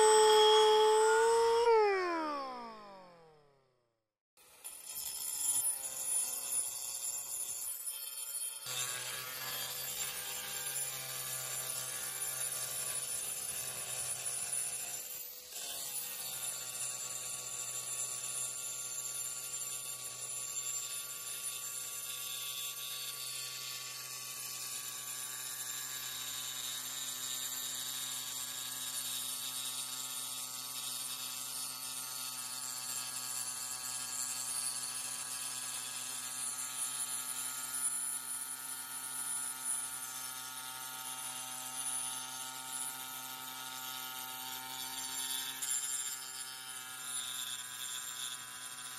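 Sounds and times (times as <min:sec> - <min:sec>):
angle grinder cutting stone: 0:00.0 - 0:03.4, 0:07.7 - 0:14.8, 0:39.4 - 0:48.9.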